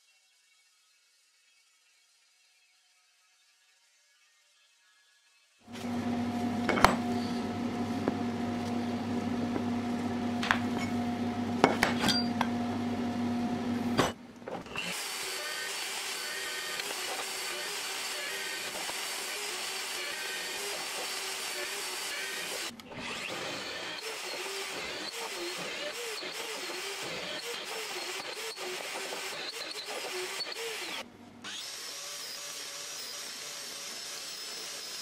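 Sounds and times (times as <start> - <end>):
drill press drilling steel: 5.7 - 9.2, 14.0 - 35.0
chop saw cutting steel: 14.0 - 35.0.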